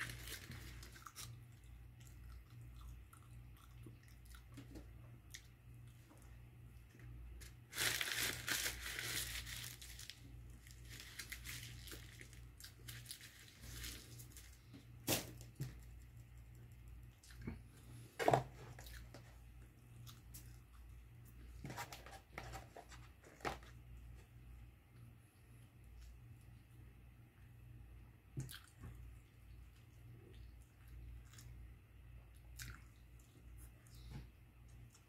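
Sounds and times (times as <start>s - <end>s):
paper wrapper crinkling and tearing: 0.0s - 1.3s, 7.4s - 15.9s.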